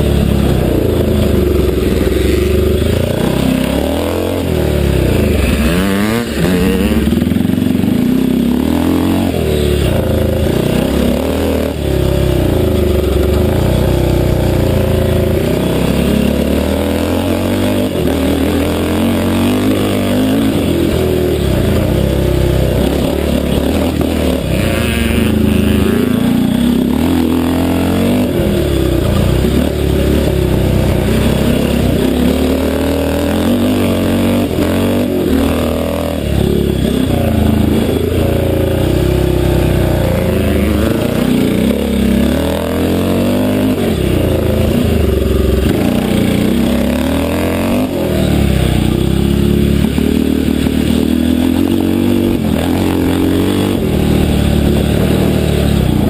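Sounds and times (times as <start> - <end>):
motocross bike engine revving: 0.0 - 56.0.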